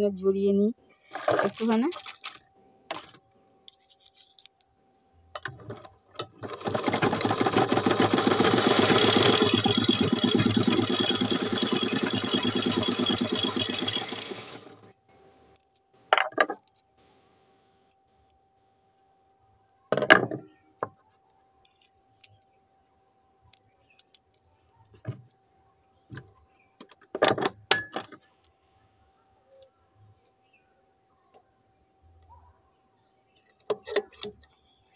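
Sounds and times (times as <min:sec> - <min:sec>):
sewing machine running: 0:06.2 - 0:14.9.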